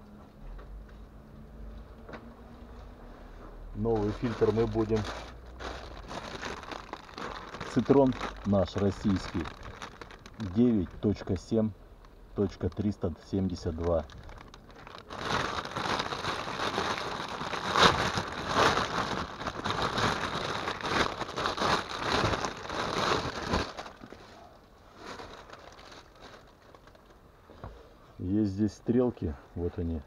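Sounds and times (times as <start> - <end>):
faint handling sounds: 0.6 - 28.3
plastic bag crinkling: 3.8 - 11.6, 12.4 - 27.3.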